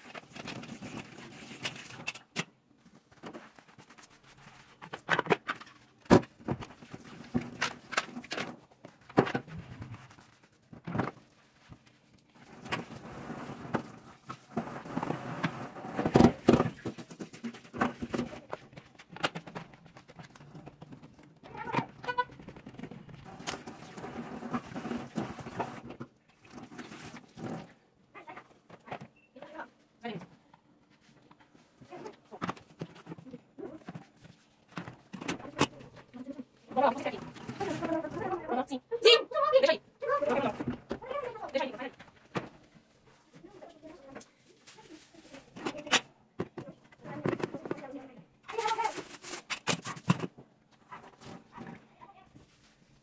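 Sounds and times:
scrubbing: 12.3 - 18.6
running tap water: 23.3 - 25.8.

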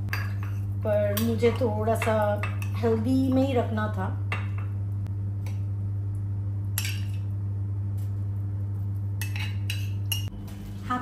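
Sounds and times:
steady low hum: 0.0 - 11.0
metal spoon mixing food: 0.1 - 3.0.

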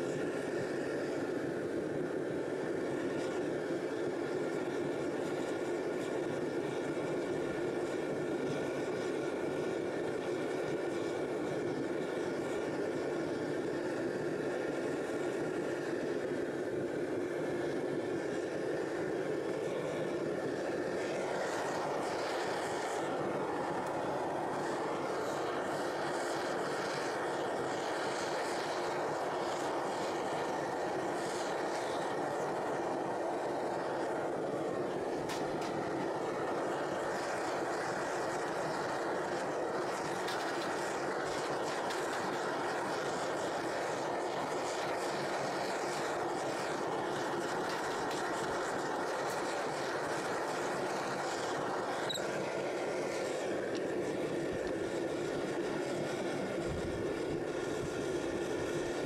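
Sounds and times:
furnace burner rushing: 0.0 - 59.0.

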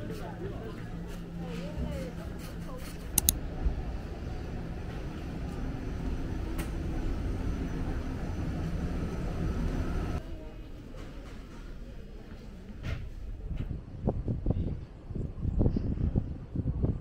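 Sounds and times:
outdoor ambience: 0.0 - 17.0
tram wheels and motors rumbling: 0.0 - 17.0.

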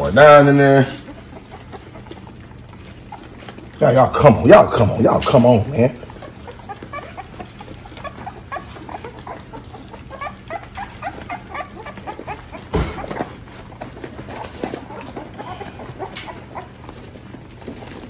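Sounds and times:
puppies squeaking and whimpering: 0.0 - 3.8, 4.4 - 18.0
thump: 12.7 - 13.1.

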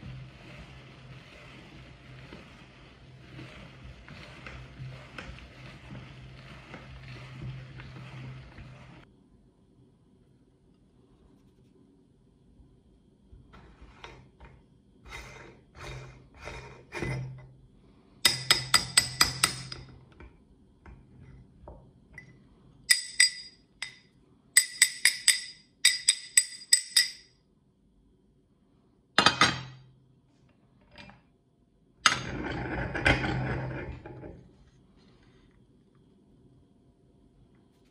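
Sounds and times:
metal grinder parts clinking: 22.9 - 24.0, 24.6 - 27.2.

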